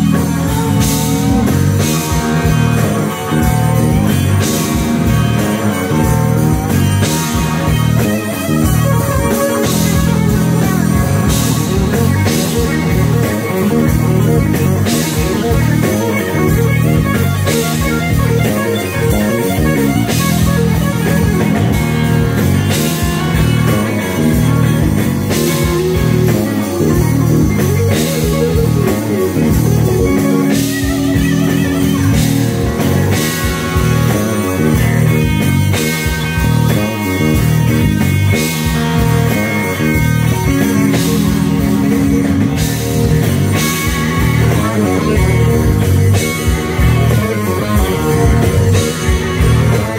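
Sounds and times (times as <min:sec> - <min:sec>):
blues-rock band playing: 0:00.0 - 0:49.9
loud electric guitar: 0:00.0 - 0:49.9.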